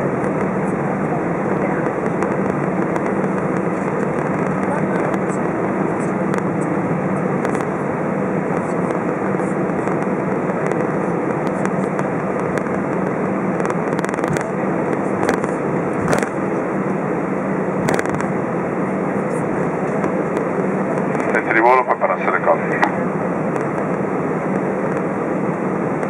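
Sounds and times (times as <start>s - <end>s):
constant low hum: 0.0s - 26.0s
jet engines rushing: 0.0s - 26.0s.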